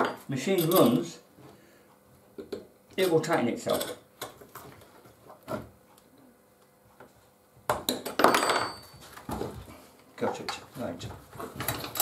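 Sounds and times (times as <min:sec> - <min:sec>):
metal tool clinking and scraping: 0:00.0 - 0:01.2.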